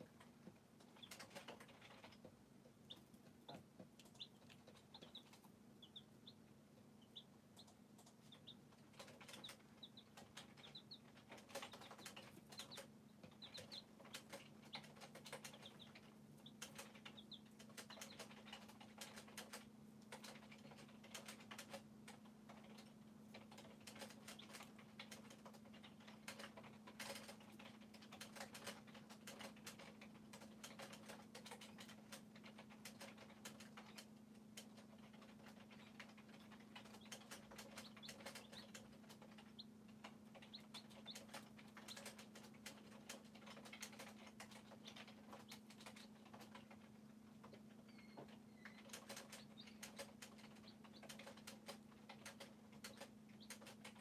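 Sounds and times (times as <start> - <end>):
chicks pecking plastic feeder: 0.0 - 54.0
chicks peeping: 0.0 - 54.0.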